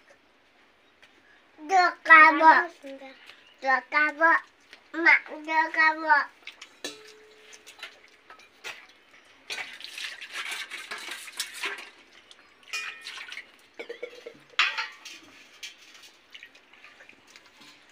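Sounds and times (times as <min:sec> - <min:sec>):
metal plates clinking: 0:06.8 - 0:08.8, 0:12.7 - 0:16.0.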